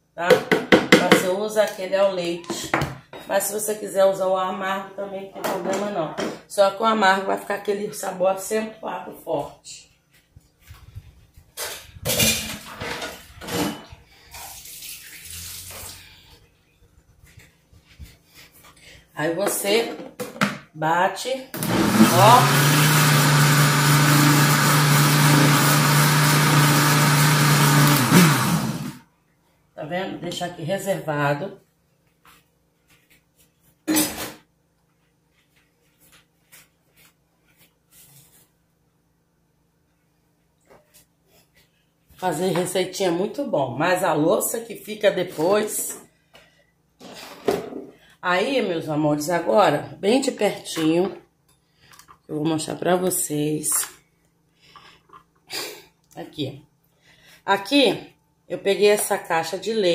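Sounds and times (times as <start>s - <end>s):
kitchen things scraping and rustling: 10.1s - 20.4s, 45.2s - 48.0s
water running from a tap: 14.3s - 16.0s.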